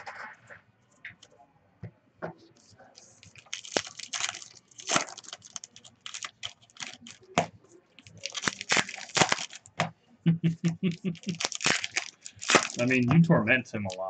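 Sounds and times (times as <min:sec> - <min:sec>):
card pack wrappers crinkling: 0:03.0 - 0:09.8, 0:11.0 - 0:13.0.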